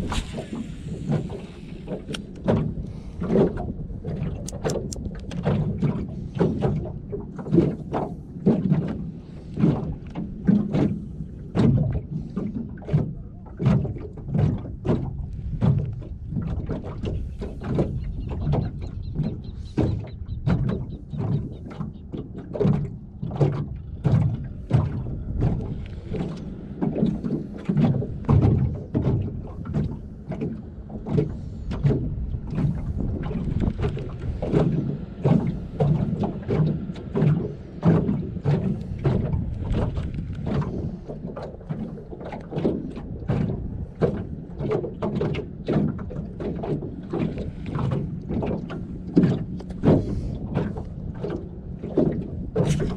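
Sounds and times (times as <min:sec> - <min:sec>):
water and wind wash: 0:00.0 - 0:52.9
waves slapping against boat hull: 0:00.0 - 0:52.9.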